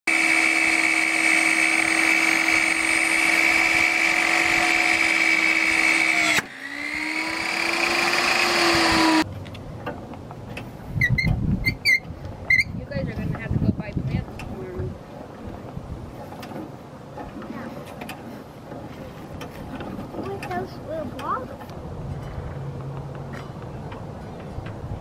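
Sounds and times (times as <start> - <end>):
table saw whining: 0.1 - 9.2.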